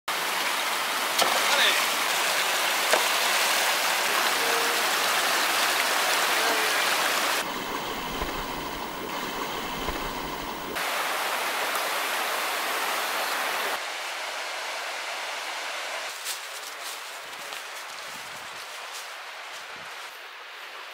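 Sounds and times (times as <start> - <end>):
stream splashing over stones: 0.1 - 13.8.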